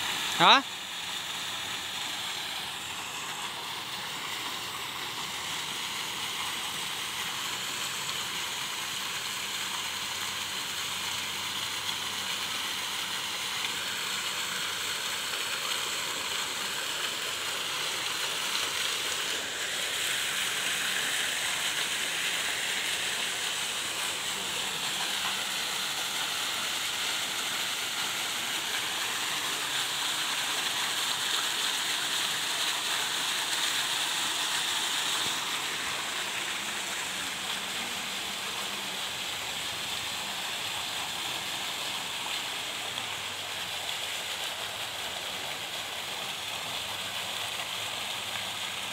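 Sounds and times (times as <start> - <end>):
fountain jets splashing into basin: 0.0 - 48.9.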